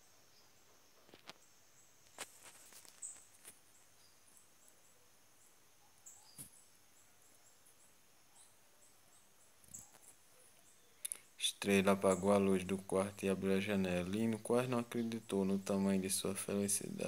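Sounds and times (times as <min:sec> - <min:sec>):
faint high hiss: 0:00.0 - 0:17.0
book page turning rustles: 0:02.1 - 0:03.6.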